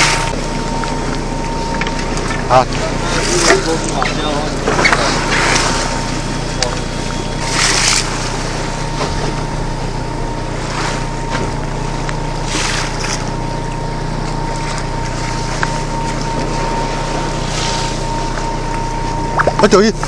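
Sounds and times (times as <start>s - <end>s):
boat engine humming: 0.0s - 20.0s
waves rushing against hull: 1.6s - 9.8s, 10.4s - 13.6s.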